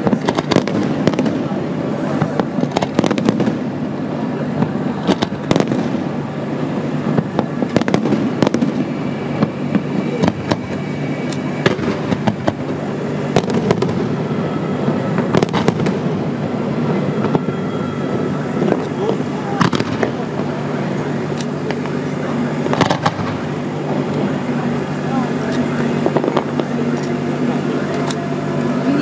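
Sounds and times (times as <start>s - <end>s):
fireworks bursting: 0.0s - 29.0s
low rumble: 0.0s - 29.0s.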